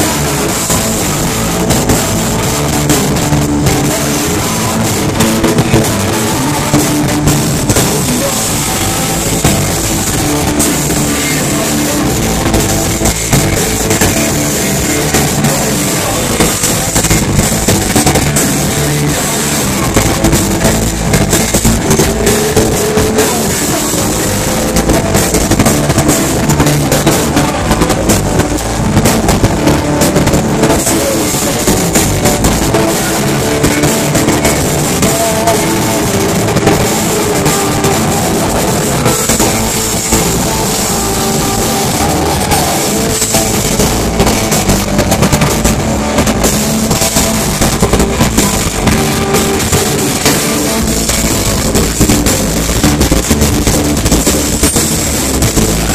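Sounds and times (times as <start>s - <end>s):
driving drum kit: 0.0s - 55.9s
electric guitars: 0.0s - 55.9s
live rock band: 0.0s - 55.9s.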